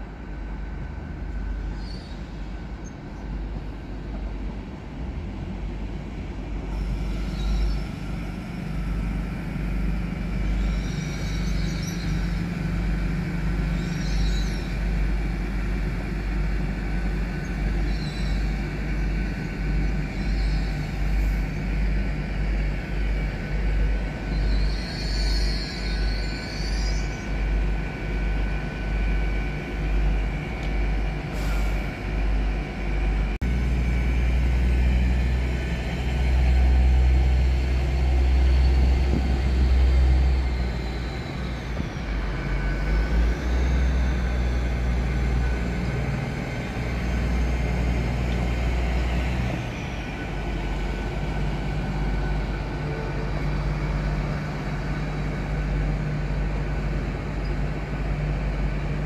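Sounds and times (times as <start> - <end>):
diesel train low rumble: 0.0 - 59.0.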